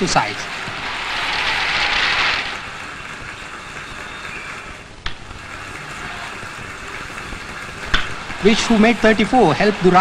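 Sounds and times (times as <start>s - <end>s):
stadium crowd hubbub: 2.5s - 10.0s.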